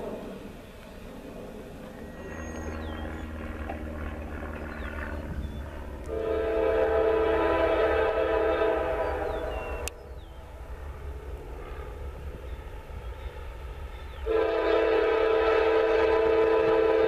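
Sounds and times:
train rumble: 0.0s - 17.0s
train horn blast: 6.0s - 9.9s, 14.2s - 17.0s.

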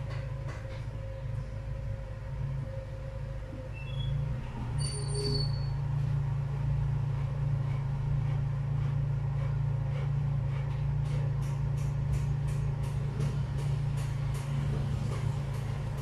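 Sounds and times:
low mechanical hum: 0.0s - 16.0s.

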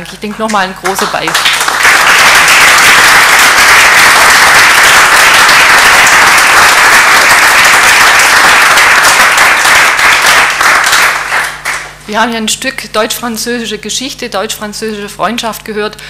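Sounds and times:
audience applauding: 0.8s - 11.9s.

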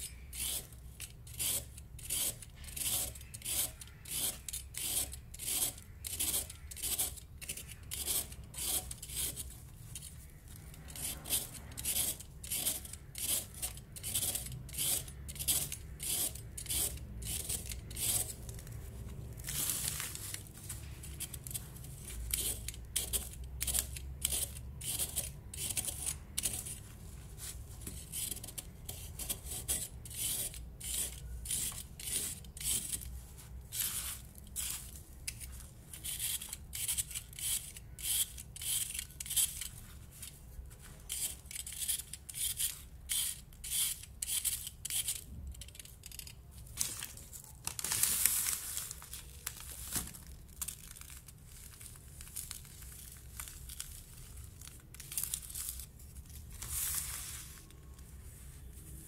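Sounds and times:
knife blade scraping powder disc: 0.0s - 18.5s, 21.1s - 26.8s, 27.9s - 40.4s, 41.0s - 46.3s.

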